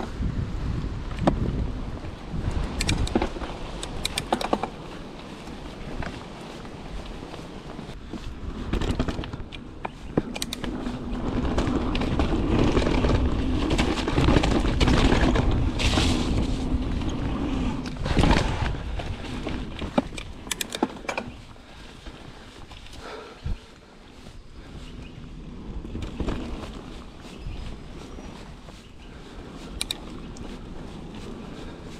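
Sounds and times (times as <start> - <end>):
bike tyres rolling over dirt: 0.0 - 31.9
wind rumble on microphone: 0.0 - 31.9
bike clicks and rattles: 1.0 - 31.9.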